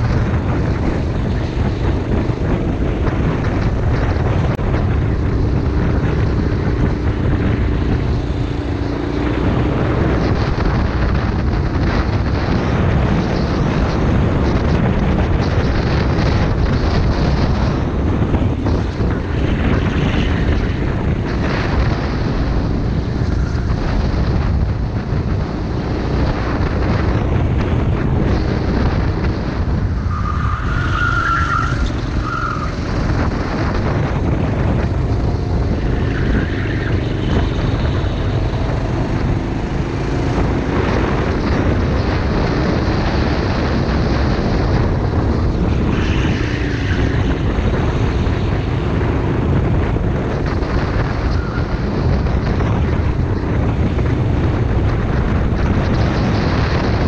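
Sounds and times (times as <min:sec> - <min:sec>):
wind buffeting microphone: 0:00.0 - 0:57.0
racing kart engine: 0:26.6 - 0:57.0.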